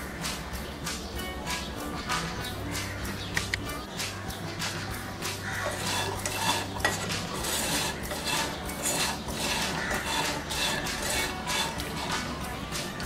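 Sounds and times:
spatula scraping nuts in a pan: 5.3s - 13.0s.

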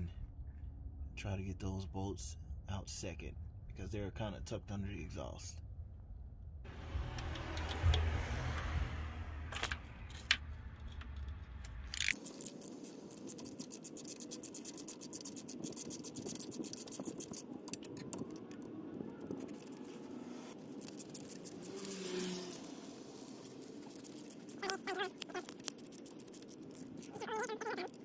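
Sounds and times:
socket ratchet clicking: 11.8s - 18.2s, 20.8s - 28.0s.

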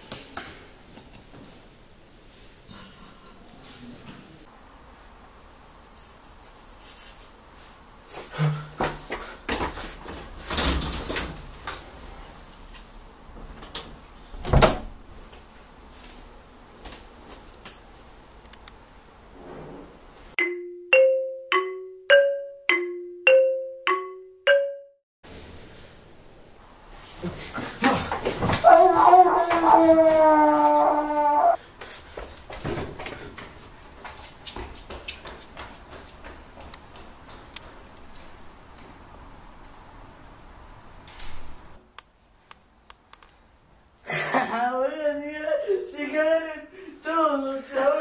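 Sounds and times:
mallet instrument tune: 20.4s - 25.0s.

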